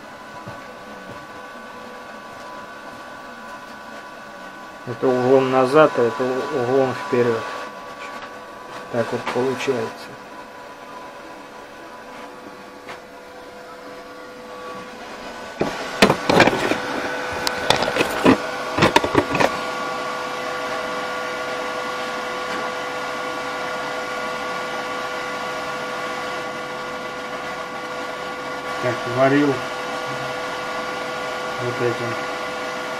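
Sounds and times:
electrical mains hum: 0.0 - 32.9
camera handling knocks and clatter: 16.0 - 16.8, 17.5 - 19.6.

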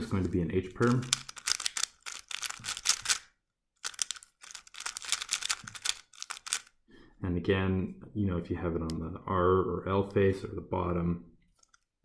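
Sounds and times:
puzzle cube clicking: 0.8 - 6.8.

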